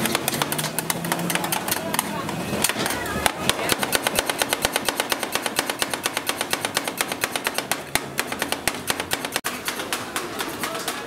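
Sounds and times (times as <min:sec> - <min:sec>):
rapid even tapping: 0:00.0 - 0:11.0.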